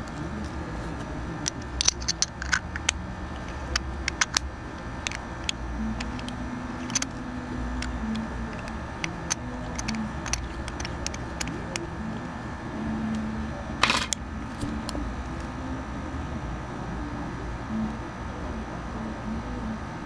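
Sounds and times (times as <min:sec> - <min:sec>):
steady low hum: 0:00.0 - 0:20.0
metal clicks and taps: 0:01.4 - 0:07.1, 0:07.8 - 0:11.9.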